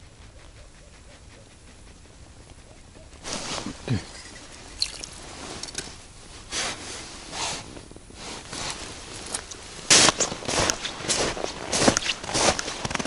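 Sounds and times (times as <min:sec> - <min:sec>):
soft rustles: 0:03.1 - 0:13.0
boots crunching on snow: 0:08.4 - 0:13.0.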